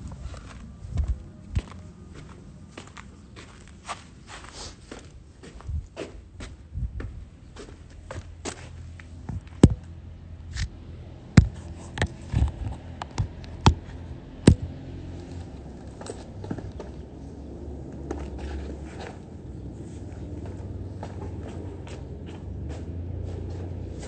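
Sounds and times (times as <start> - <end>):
low microphone rumble: 0.0 - 3.1, 5.2 - 15.9.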